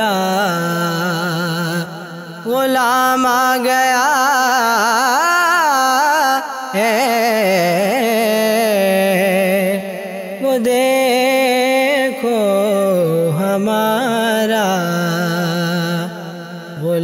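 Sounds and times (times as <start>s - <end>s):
man singing: 0.0s - 17.0s.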